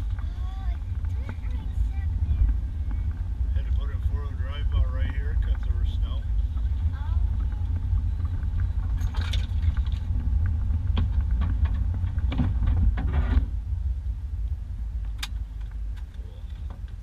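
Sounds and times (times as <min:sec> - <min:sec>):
engine and tyres rumbling: 0:00.0 - 0:17.0
truck knocks and rattles: 0:06.4 - 0:13.6.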